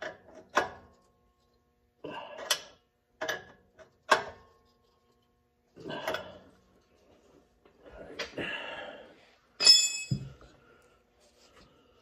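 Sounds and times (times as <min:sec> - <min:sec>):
sharp metallic clink: 0:09.6 - 0:10.3.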